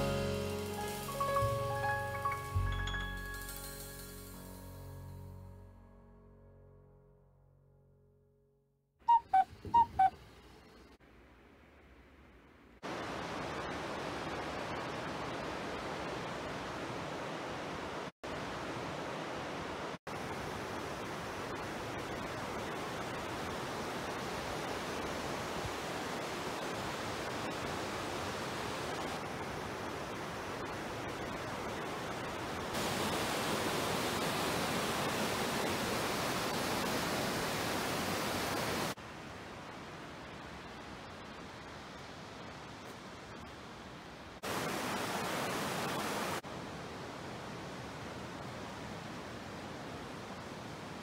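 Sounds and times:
river rushing over boulders: 12.8s - 40.8s, 41.4s - 51.0s.

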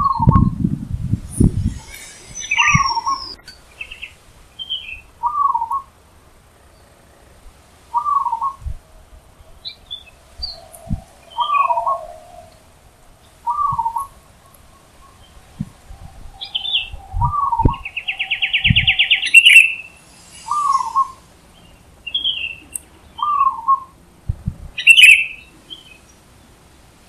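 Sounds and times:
small birds chirping: 0.0s - 24.0s, 24.8s - 26.7s
dove cooing: 1.6s - 4.0s, 7.9s - 8.7s, 9.5s - 21.2s.

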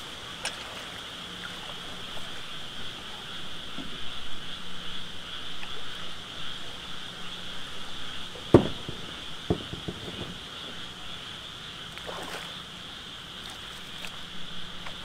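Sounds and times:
water sloshing: 0.0s - 4.6s, 5.5s - 15.0s
boat hull knocking on trailer: 8.3s - 11.0s.

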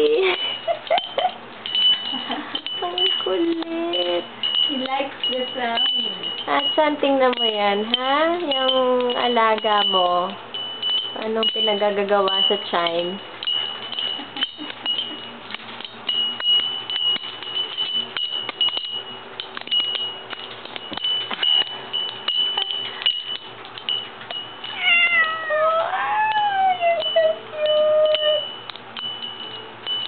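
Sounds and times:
wooden wind chime clattering: 0.0s - 30.0s
cat meowing: 24.7s - 27.4s.

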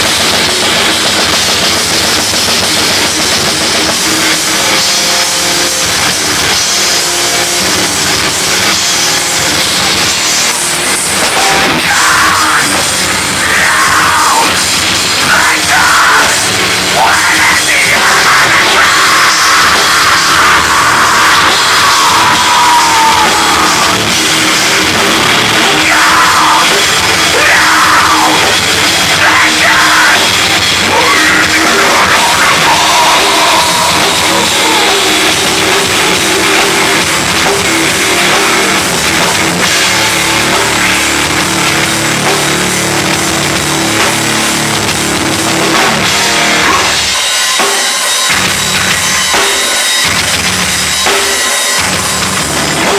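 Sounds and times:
bass guitar: 0.0s - 52.9s
distorted electric guitar: 0.0s - 52.9s
drum kit: 0.0s - 52.9s
shouted vocals: 11.3s - 38.8s, 46.5s - 47.1s.

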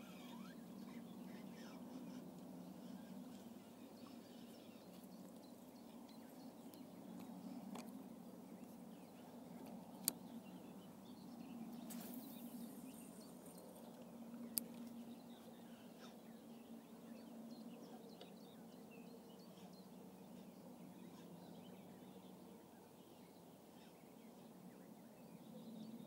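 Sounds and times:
bird chirps: 0.0s - 7.3s.

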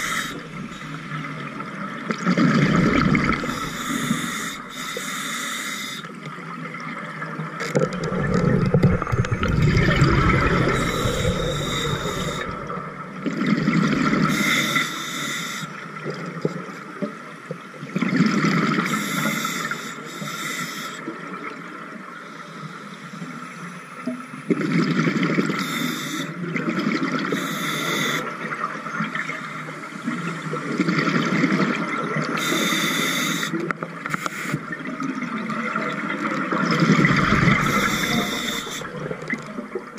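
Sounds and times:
exhaled bubbles rushing: 2.1s - 4.0s, 7.8s - 14.3s, 36.0s - 39.9s
diver inhaling through regulator: 3.3s - 6.0s, 9.3s - 12.9s, 37.2s - 39.0s.

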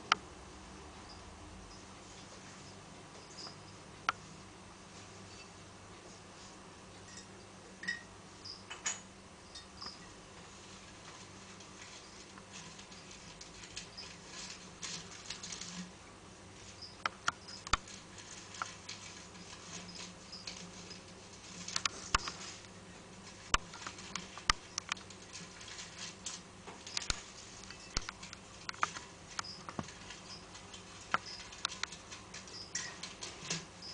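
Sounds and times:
rustling on wood-chip bedding: 10.3s - 33.9s
wood chips clicking: 17.0s - 22.7s, 23.3s - 33.7s.

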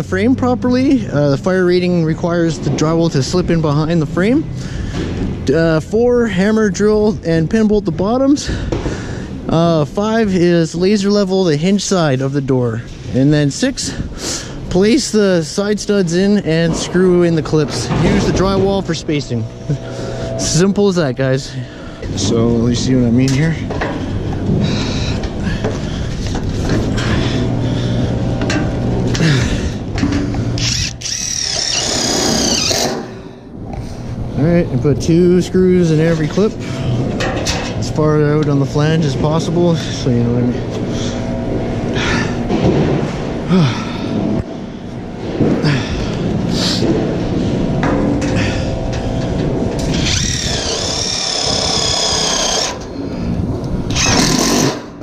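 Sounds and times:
impact driver whining: 23.6s - 33.3s, 47.7s - 53.2s, 53.8s - 55.0s
cordless drill driving screws: 30.6s - 33.1s, 49.8s - 52.9s, 53.9s - 54.8s.

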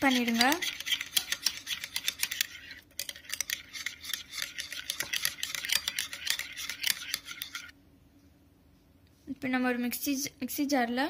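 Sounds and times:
spoon scraping glass bowl: 0.0s - 7.7s.

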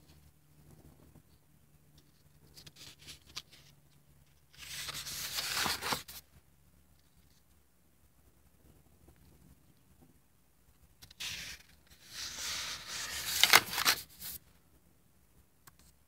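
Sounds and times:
paper page turning: 2.6s - 3.7s, 4.5s - 6.2s, 11.0s - 14.4s.

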